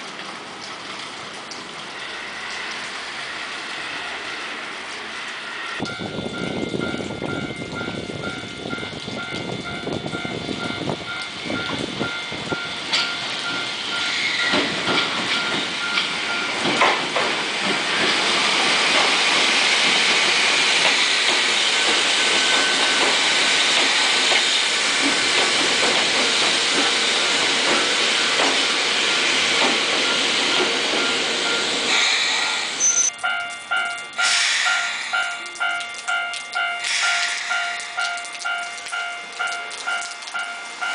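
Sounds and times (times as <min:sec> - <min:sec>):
hiss of wheels on rail: 0:01.8 - 0:06.4, 0:10.9 - 0:33.0, 0:34.2 - 0:35.6, 0:36.8 - 0:38.1
train wheels clicking over rail joints: 0:05.8 - 0:32.6, 0:33.2 - 0:40.9
level crossing bell ringing: 0:32.8 - 0:36.8.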